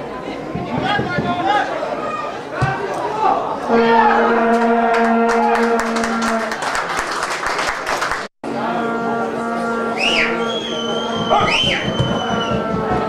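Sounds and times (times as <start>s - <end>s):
crowd voices: 0.0s - 7.1s, 8.4s - 13.0s
horn droning on a low note: 3.7s - 6.5s, 8.5s - 13.0s
crowd clapping: 4.4s - 8.3s
referee's whistle long blast: 9.9s - 12.6s.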